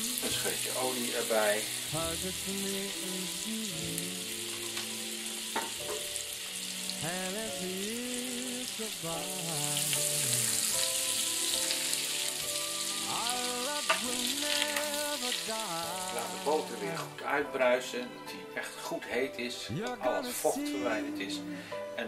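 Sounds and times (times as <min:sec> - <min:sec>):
butter sizzling in frying pan: 0:00.0 - 0:17.1
background music: 0:00.0 - 0:22.0.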